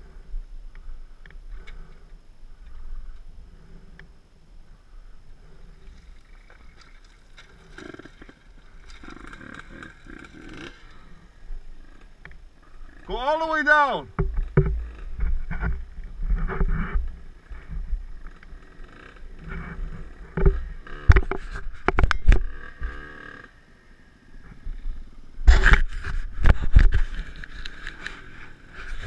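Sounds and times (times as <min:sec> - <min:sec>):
dirt bike knocks and scrapes: 0:25.5 - 0:29.0.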